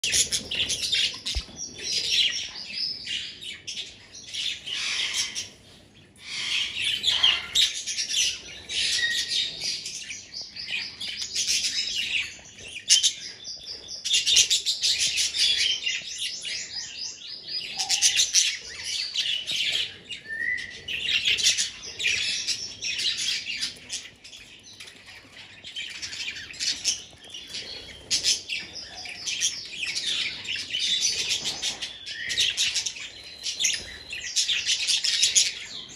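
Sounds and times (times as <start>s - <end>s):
budgerigars chattering: 4.5s - 5.5s, 6.2s - 9.7s.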